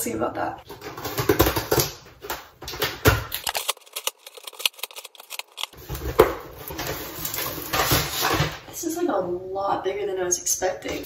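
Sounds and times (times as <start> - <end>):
packing paper rustling: 2.6 - 8.4
scissors cutting tape: 3.3 - 5.8.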